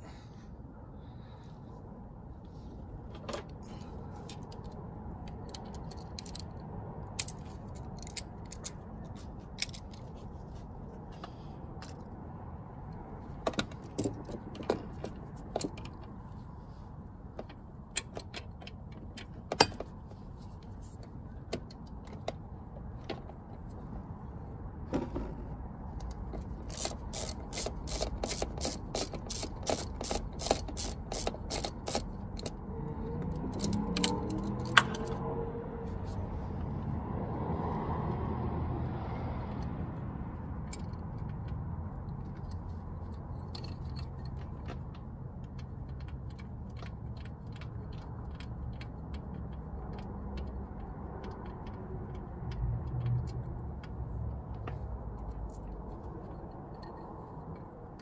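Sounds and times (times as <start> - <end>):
socket ratchet clicking: 26.0 - 35.2.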